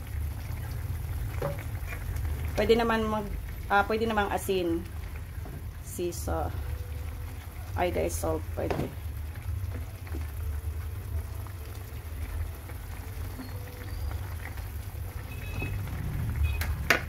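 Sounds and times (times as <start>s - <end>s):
food simmering in a pan: 0.0s - 17.0s.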